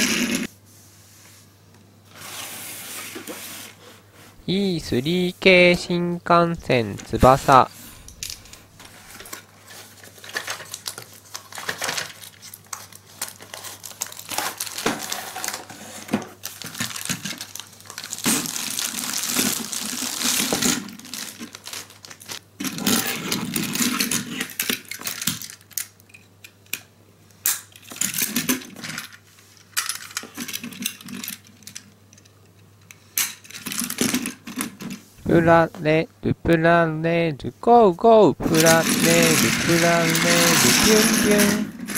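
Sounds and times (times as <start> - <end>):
cardboard and plastic rustling: 7.0 - 22.4, 38.4 - 41.9
toy train clicking on wooden floor: 38.6 - 41.9.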